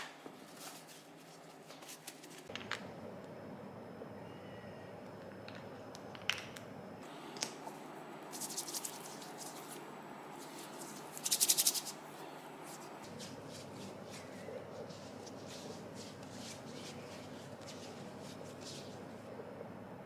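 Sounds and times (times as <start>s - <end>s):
hands rubbing cream into skin: 10.4s - 12.0s, 12.6s - 19.2s.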